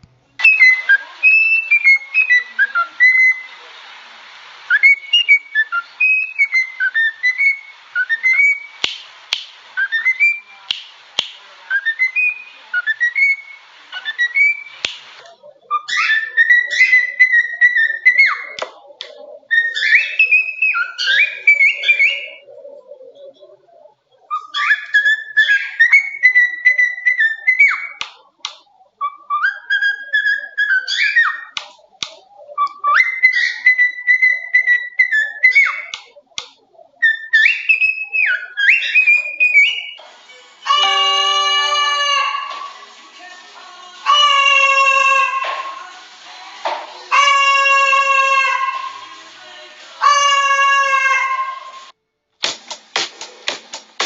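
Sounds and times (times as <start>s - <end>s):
cockatiels whistling tunes: 0.4s - 3.6s, 4.7s - 9.0s, 9.8s - 10.9s, 11.7s - 14.9s, 15.7s - 18.6s, 19.5s - 22.4s, 24.3s - 28.0s, 29.0s - 36.1s, 37.0s - 43.0s
sharp clicks: 8.8s - 9.6s, 10.7s - 11.4s.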